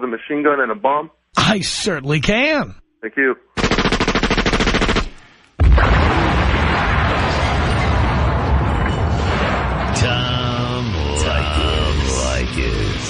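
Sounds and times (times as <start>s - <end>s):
machine-gun burst: 3.6s - 5.2s
bomb explosion rumbling: 5.6s - 12.0s.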